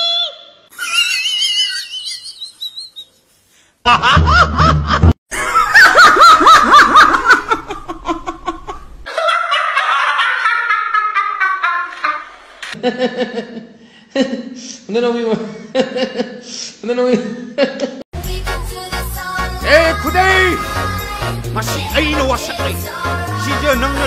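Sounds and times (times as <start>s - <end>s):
men laughing hard: 3.9s - 13.7s.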